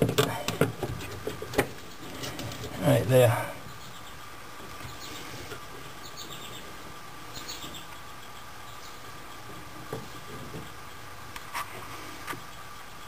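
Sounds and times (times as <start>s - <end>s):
scratching and rustling: 0.0s - 3.1s, 9.4s - 12.5s.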